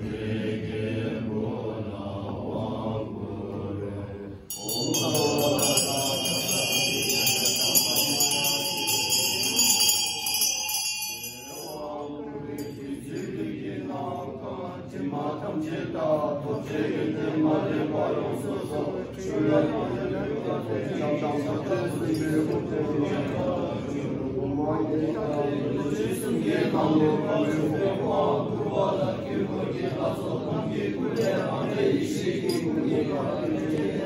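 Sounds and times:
monks chanting in low voices: 0.0s - 34.0s
hand bell ringing: 4.5s - 11.9s.

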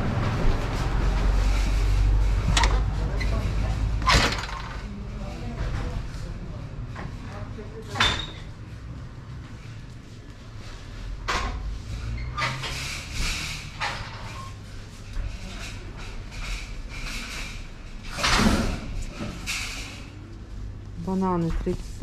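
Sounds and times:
knocks and clatters: 2.4s - 4.9s.

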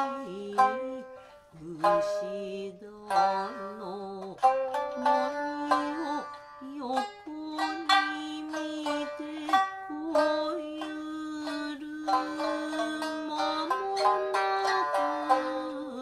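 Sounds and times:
plucked shamisen: 0.0s - 16.0s
woman singing long notes: 0.0s - 16.0s.

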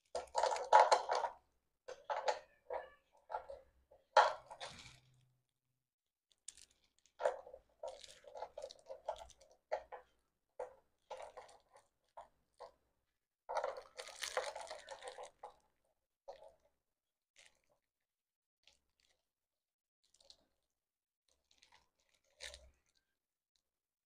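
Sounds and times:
plastic mount clicks and rattles: 0.1s - 3.6s.

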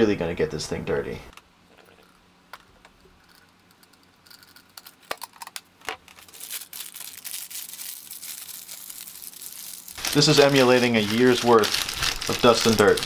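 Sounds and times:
crackers falling onto keyboard: 3.8s - 13.0s
plastic bag crinkling: 4.2s - 13.0s.

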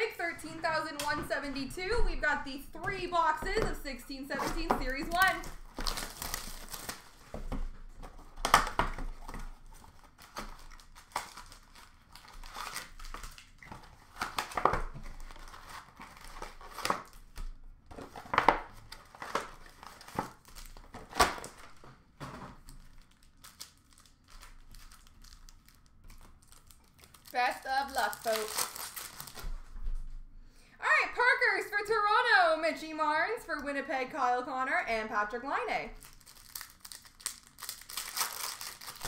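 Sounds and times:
wrapping and cardboard tearing: 4.3s - 29.8s, 36.0s - 39.0s.

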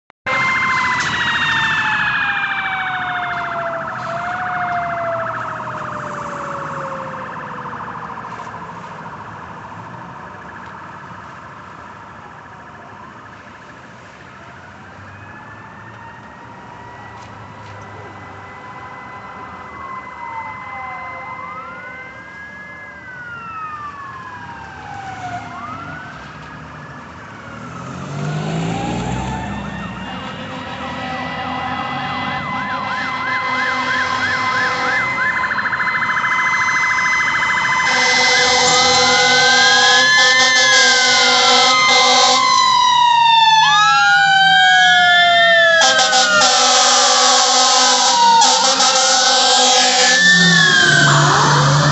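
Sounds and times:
fire engine sirens wailing: 0.2s - 51.9s
vehicle passing on wet road: 27.4s - 32.9s, 49.0s - 51.9s
loud blaring horn: 29.7s - 35.4s, 37.7s - 42.7s, 45.5s - 51.9s.

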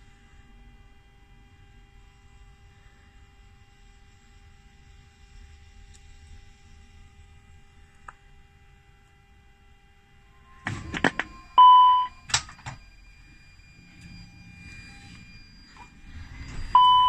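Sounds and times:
electronic beep: 10.3s - 17.0s.

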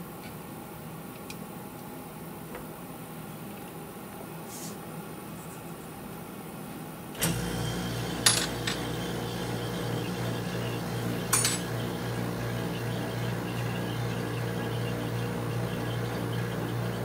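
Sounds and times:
vacuum pump humming: 7.2s - 17.0s.

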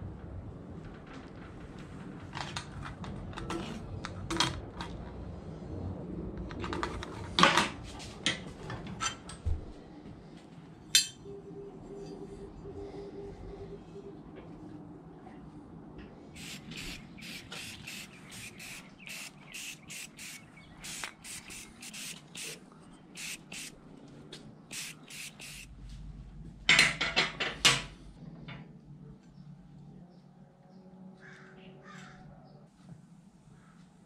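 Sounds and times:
spray paint can hissing bursts: 16.4s - 22.6s, 23.2s - 23.7s, 24.7s - 25.7s.

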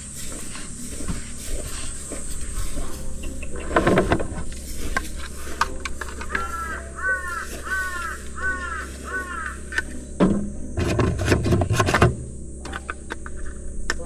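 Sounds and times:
crow cawing: 5.7s - 10.1s.

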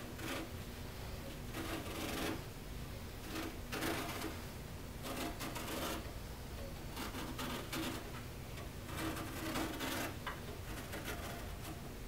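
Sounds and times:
razor blade cutting carpet: 8.9s - 10.2s.

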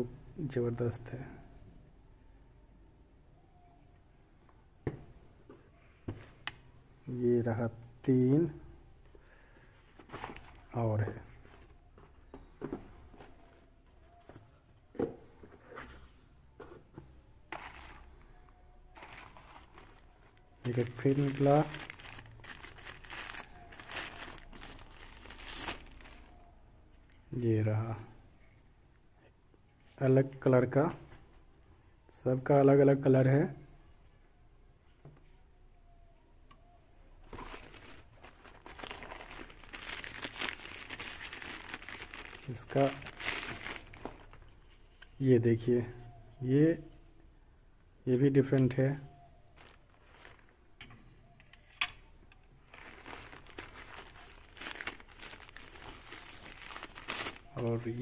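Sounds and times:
plastic packaging crinkling: 17.5s - 18.2s, 18.9s - 26.5s, 37.2s - 44.9s, 49.6s - 50.6s, 52.6s - 58.0s.

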